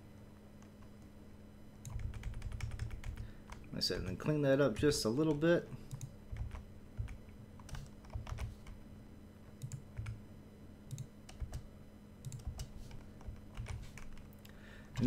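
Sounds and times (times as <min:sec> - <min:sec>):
faint hum: 0:00.0 - 0:15.0
computer keyboard typing: 0:01.8 - 0:04.1, 0:05.3 - 0:08.8, 0:09.6 - 0:10.2, 0:10.9 - 0:11.6, 0:12.2 - 0:14.3.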